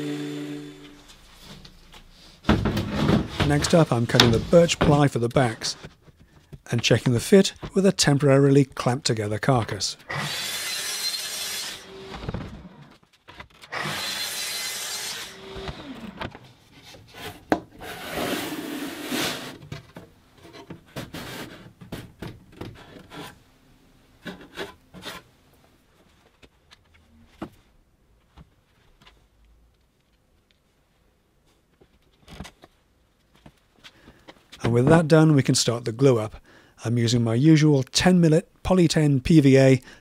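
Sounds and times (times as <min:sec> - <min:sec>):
saw motor winding down: 0:00.0 - 0:01.0
track saw cutting plywood: 0:00.0 - 0:01.0, 0:10.1 - 0:12.9, 0:13.7 - 0:16.4.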